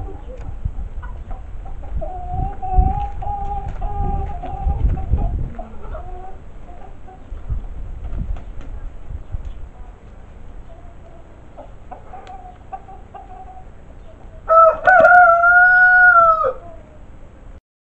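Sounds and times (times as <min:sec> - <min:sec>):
chicken clucking softly: 0:00.0 - 0:07.7, 0:08.5 - 0:15.3
young rooster crowing: 0:14.4 - 0:17.0.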